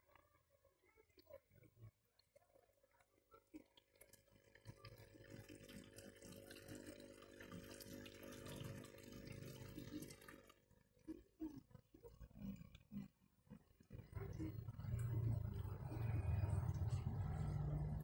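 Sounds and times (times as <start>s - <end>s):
water trickling and splashing: 3.5s - 10.6s.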